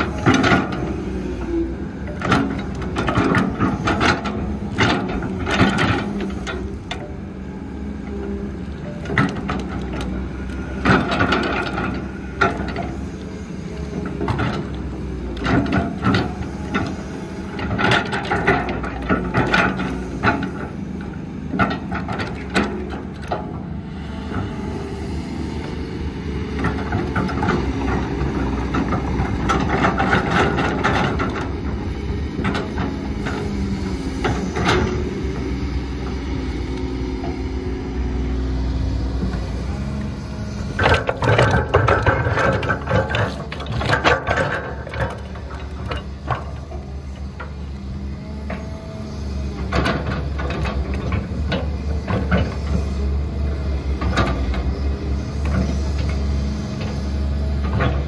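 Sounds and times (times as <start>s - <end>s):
diesel engine drone: 0.0s - 58.0s
rumble of machinery: 0.0s - 58.0s
metal clanks and knocks: 40.7s - 46.6s.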